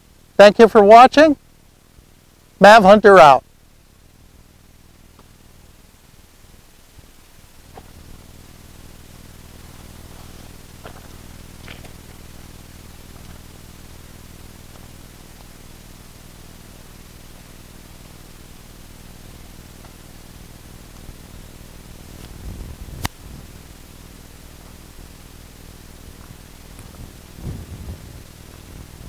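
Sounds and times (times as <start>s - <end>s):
steady hiss: 0.0s - 29.0s
footsteps on gravel: 9.6s - 12.3s
low rumble: 19.3s - 29.0s.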